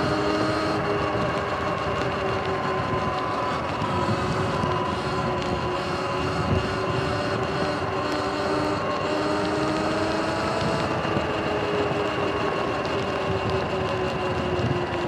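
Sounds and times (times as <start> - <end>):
electric motor whine: 0.0 - 15.0
wind and road noise: 0.0 - 15.0.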